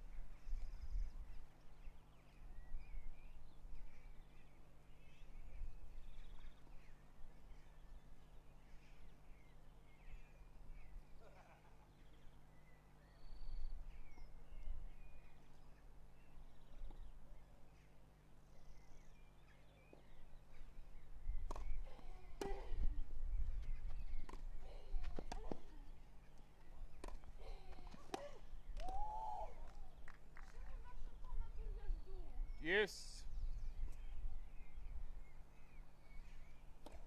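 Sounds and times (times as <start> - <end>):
birds chirping faintly: 0.0 - 37.0
rackets hitting tennis ball: 27.0 - 28.4.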